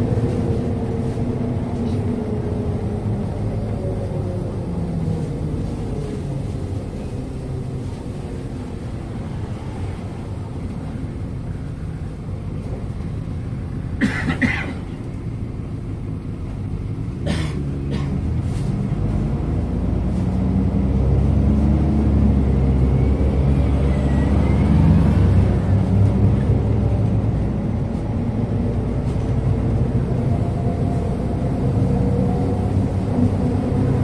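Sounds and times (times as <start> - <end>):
bus engine drone: 0.0 - 34.0.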